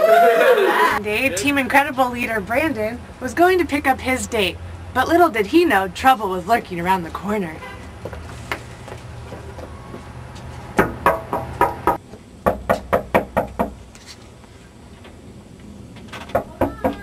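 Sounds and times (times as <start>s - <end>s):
knocking on glass door: 10.8s - 13.8s, 16.2s - 17.0s.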